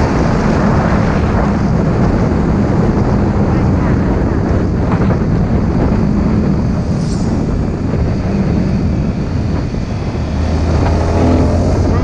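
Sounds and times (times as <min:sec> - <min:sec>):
wind rush on microphone: 0:00.0 - 0:12.0
motorcycle engine slowing: 0:04.7 - 0:12.0.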